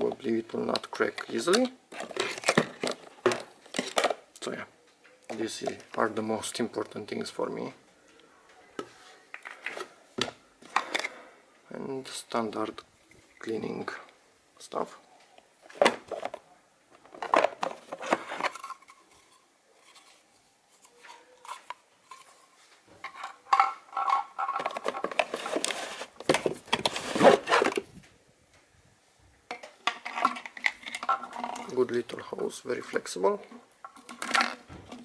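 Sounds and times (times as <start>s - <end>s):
plastic hose rattling: 0.0s - 4.2s, 23.0s - 27.9s, 32.9s - 35.0s
plastic attachments clattering: 0.0s - 4.4s, 9.4s - 11.2s, 17.0s - 20.2s, 23.0s - 27.9s, 29.5s - 32.0s, 32.8s - 35.0s
rustling of cardboard box: 25.0s - 27.8s.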